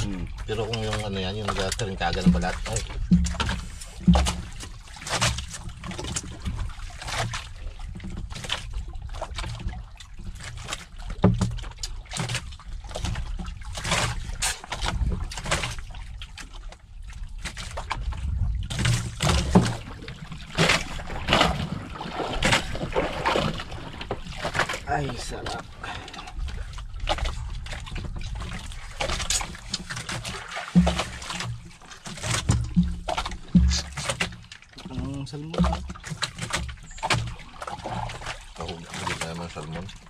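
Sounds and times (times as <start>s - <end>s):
water lapping against boat hull: 0.0s - 40.0s.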